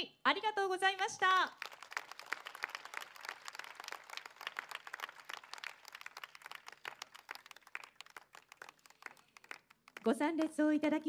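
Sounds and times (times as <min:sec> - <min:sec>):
crowd applauding: 0:01.3 - 0:10.1.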